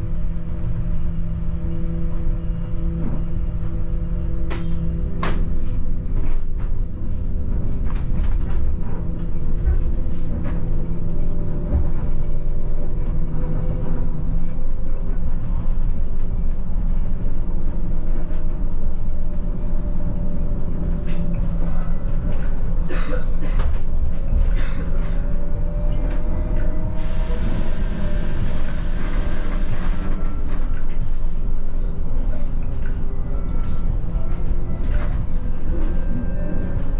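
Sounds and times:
bus engine rumble: 0.0 - 36.9.

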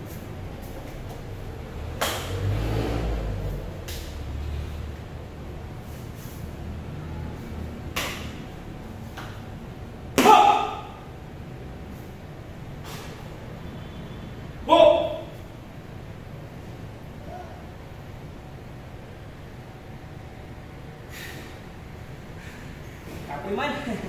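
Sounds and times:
stick knocks: 7.9 - 8.4.

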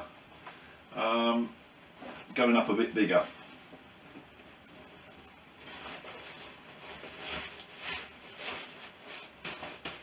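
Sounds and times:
fabric rustling: 3.1 - 10.0.

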